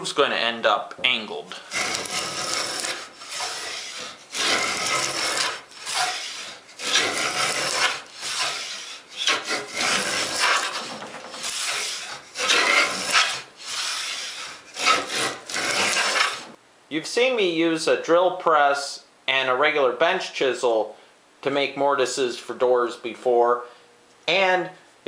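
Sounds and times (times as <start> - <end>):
hand plane rasping through wood: 1.6 - 16.6.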